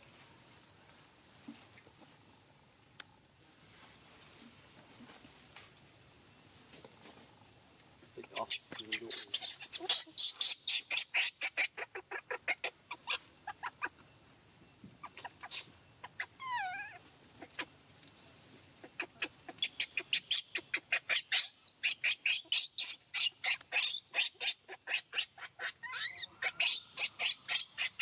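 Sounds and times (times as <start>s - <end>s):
wavering falling animal call: 15.1s - 17.6s, 23.8s - 28.0s.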